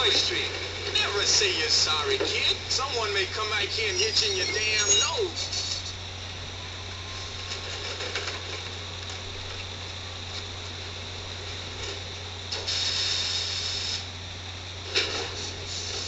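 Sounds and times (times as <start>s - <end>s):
low hum and hiss: 0.0s - 16.0s
loud hiss: 4.4s - 6.0s, 12.4s - 14.2s, 14.8s - 16.0s.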